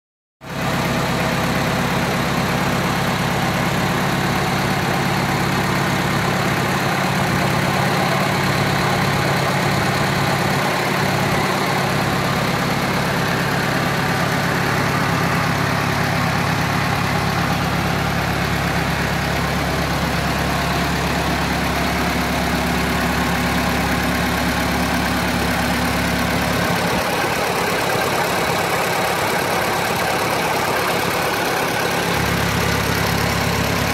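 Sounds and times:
tractor engine idling: 0:00.5 - 0:33.9.

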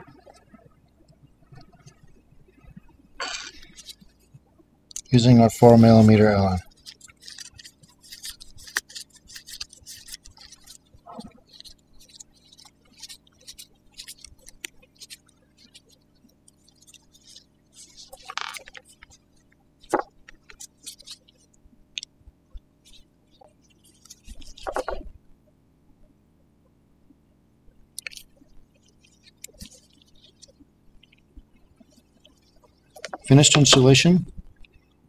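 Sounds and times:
gloved hands handling parts: 0:05.3 - 0:15.9, 0:16.8 - 0:19.2.

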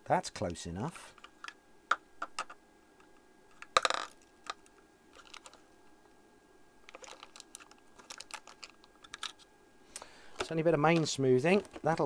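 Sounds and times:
small parts clicking and clattering: 0:03.5 - 0:05.6, 0:06.8 - 0:09.5.

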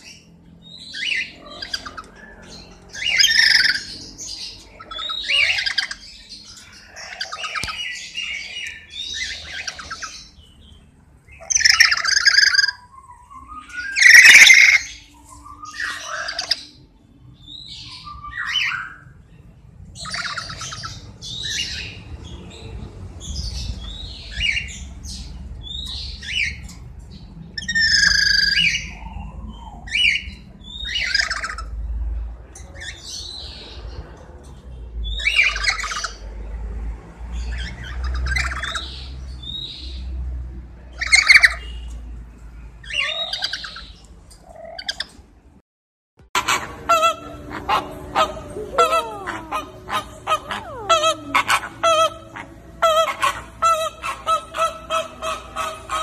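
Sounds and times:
cockatoos squawking: 0:00.8 - 0:10.4, 0:11.4 - 0:16.8, 0:27.6 - 0:31.7, 0:46.4 - 0:56.0.

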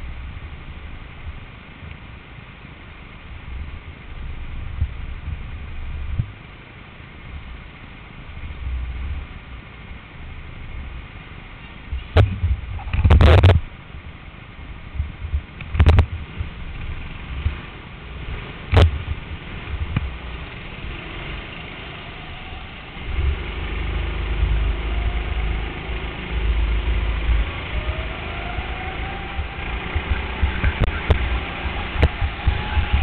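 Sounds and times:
go-kart engines idling: 0:16.2 - 0:33.0
go-kart engine accelerating: 0:16.7 - 0:33.0.

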